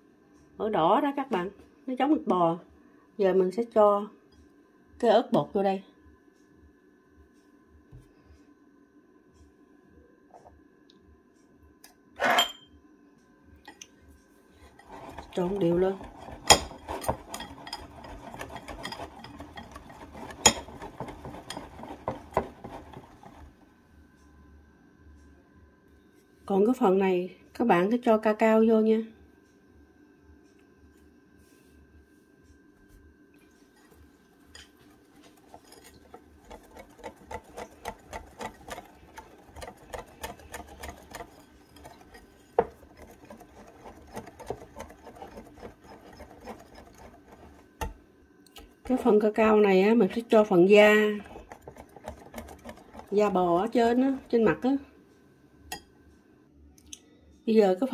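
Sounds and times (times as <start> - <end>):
whisk swishing through batter: 14.6 - 23.6, 34.8 - 48.0, 50.0 - 54.7
whisk wires clicking against bowl: 14.8 - 23.5, 35.3 - 49.1, 50.3 - 54.7.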